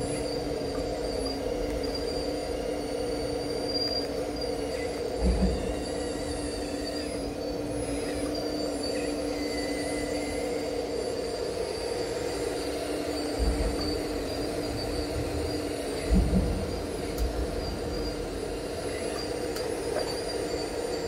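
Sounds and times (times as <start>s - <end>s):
model excavator mechanical whine: 0.0s - 21.0s.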